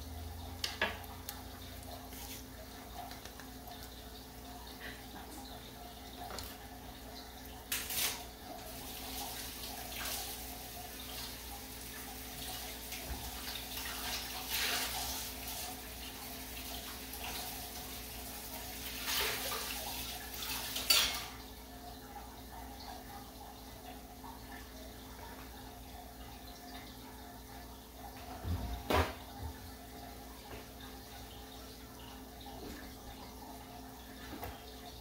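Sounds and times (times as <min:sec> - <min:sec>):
hot oil sizzling and spattering: 0:07.7 - 0:10.8.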